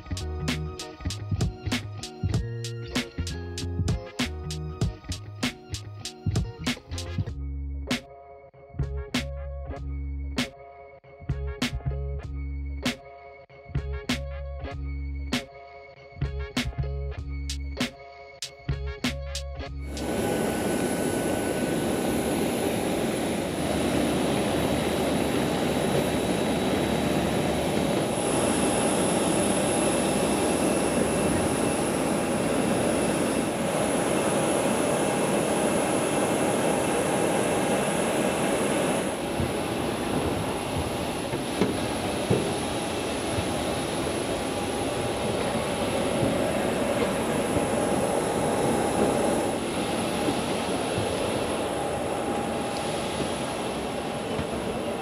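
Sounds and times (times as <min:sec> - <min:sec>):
jet turbine whine: 0:19.8 - 0:55.0
aircraft rushing roar: 0:19.9 - 0:55.0.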